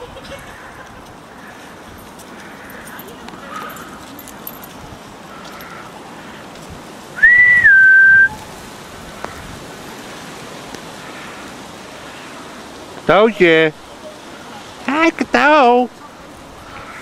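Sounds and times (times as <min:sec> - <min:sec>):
steady outdoor hiss: 0:00.0 - 0:17.0
person whistling two notes: 0:07.2 - 0:08.4.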